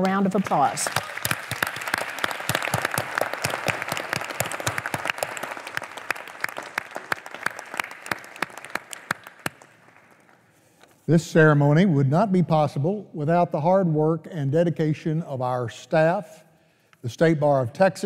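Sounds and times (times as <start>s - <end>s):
audience applause: 0.4s - 10.4s.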